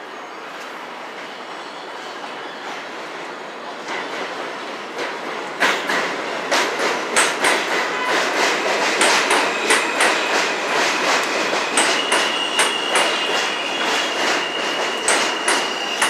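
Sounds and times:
high squeal from train wheels: 0.0 - 4.7, 5.3 - 16.0
train wheels clacking over rail joints: 3.8 - 16.0.

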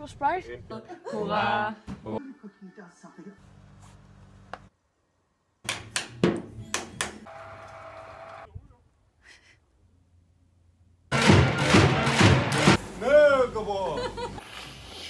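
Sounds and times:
crowd in sports arena: 11.1 - 12.8.

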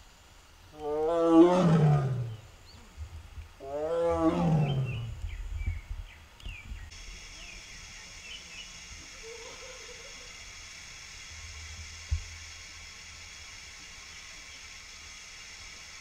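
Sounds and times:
tiger roaring: 0.8 - 2.4, 3.6 - 5.2
birds chirping faintly: 4.2 - 10.4.

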